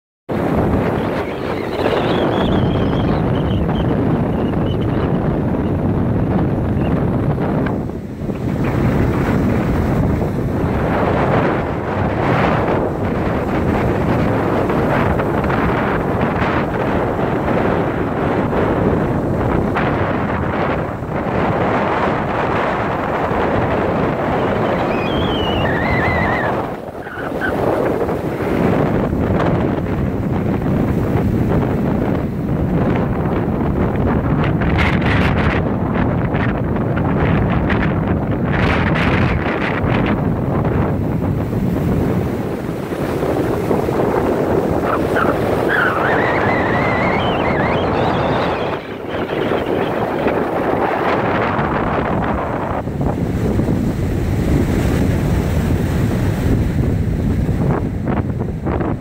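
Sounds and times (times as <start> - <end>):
heavy surf breaking: 0.3 - 59.0
strong wind buffeting microphone: 0.3 - 59.0
thin wavering whistle: 1.3 - 5.0, 24.7 - 27.5, 45.8 - 50.0.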